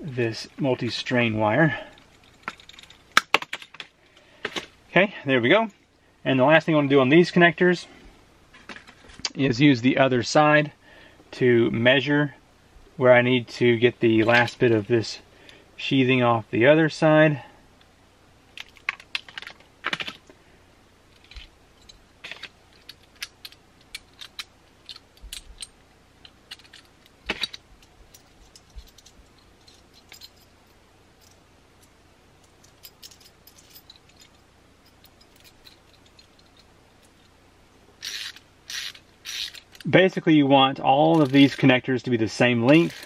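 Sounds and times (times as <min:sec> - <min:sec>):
metal connectors rattling: 0:01.9 - 0:04.7, 0:18.6 - 0:20.3, 0:21.1 - 0:37.3, 0:38.0 - 0:40.0, 0:41.0 - 0:41.8, 0:42.6 - 0:43.0.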